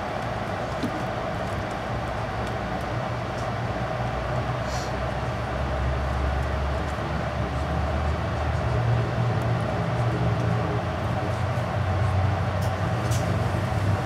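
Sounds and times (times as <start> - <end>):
train rumble and hum: 0.0 - 14.0
short hiss: 4.6 - 4.9.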